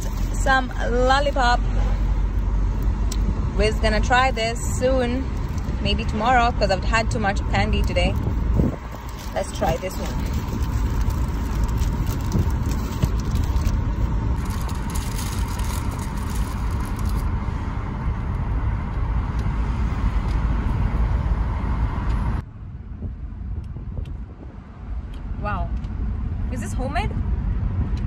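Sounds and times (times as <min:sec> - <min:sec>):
car interior rumble: 0:00.0 - 0:28.0
wrapper crinkling: 0:08.7 - 0:17.3.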